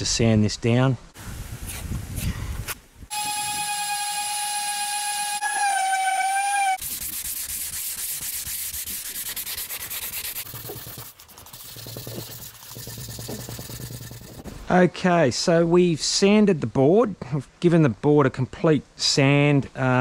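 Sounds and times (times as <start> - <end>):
orbital sander whine: 3.1 - 6.8
hand sanding rasping strokes: 3.1 - 14.4.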